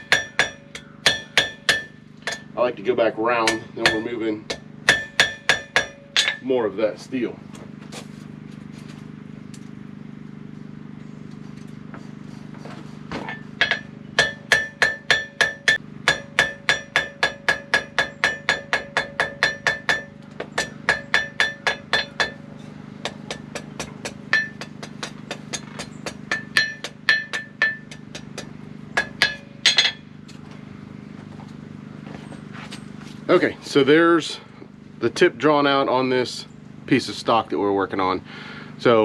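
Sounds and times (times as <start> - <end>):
hammer striking ringing anvil: 0.0 - 2.6, 3.4 - 6.5, 13.3 - 30.1
steady low hum: 0.0 - 39.0.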